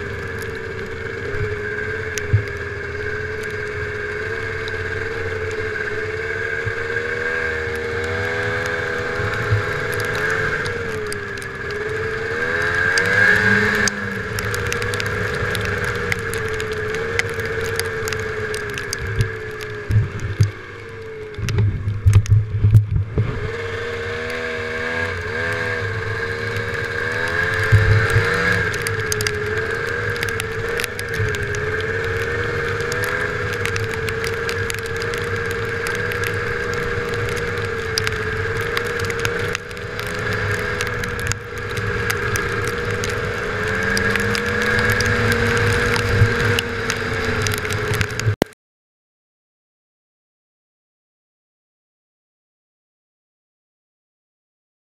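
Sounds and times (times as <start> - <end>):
snowmobile engine running: 0.0 - 48.4.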